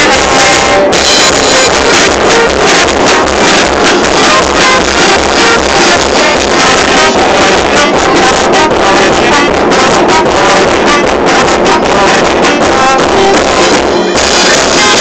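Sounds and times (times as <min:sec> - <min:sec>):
steady drum beat: 0:00.0 - 0:15.0.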